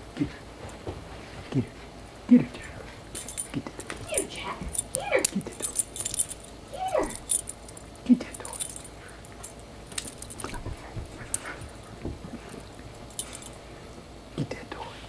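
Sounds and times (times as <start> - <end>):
dog collar tags jingling: 3.1 - 13.6.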